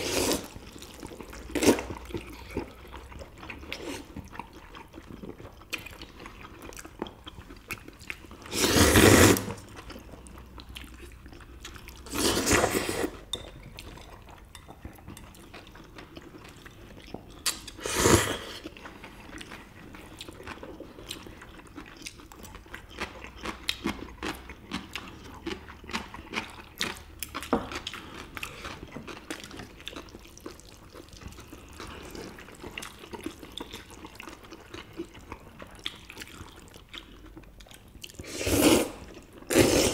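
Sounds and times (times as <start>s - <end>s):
loud noodle slurps: 0.0s - 0.5s, 8.5s - 9.6s, 12.1s - 13.2s, 17.8s - 18.6s, 38.2s - 39.9s
people chewing: 0.0s - 39.9s.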